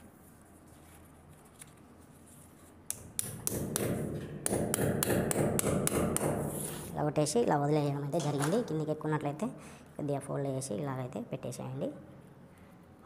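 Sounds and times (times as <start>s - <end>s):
rustling handling noise: 0.0s - 2.8s.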